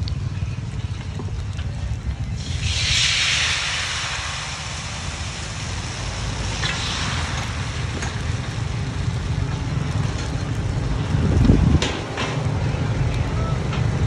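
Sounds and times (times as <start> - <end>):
low rumble: 0.0 - 14.0
batter sizzling in a wok: 2.3 - 10.6.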